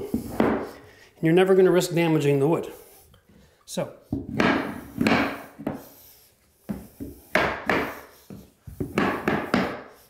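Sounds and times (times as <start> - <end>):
rubber mallet tapping floor plank: 4.1 - 5.8, 8.7 - 9.9.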